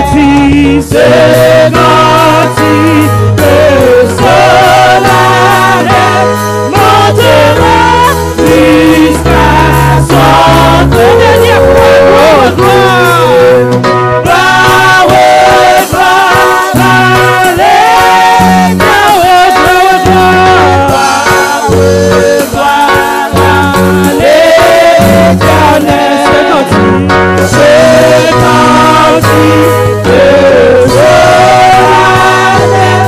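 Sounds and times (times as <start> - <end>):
instrumental accompaniment with bass: 0.0 - 33.0
woman singing: 10.8 - 12.8.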